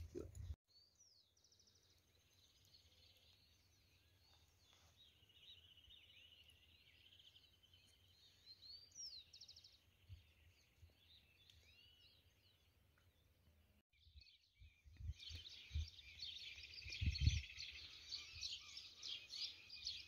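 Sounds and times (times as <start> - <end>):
songbirds chirping: 0.0 - 20.0
bird trill: 15.2 - 20.0.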